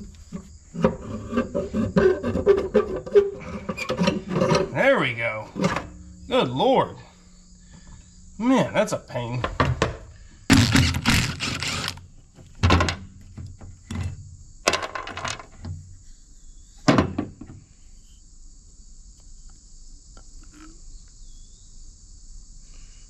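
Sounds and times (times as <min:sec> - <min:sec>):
metal housing clattering: 0:00.0 - 0:04.8.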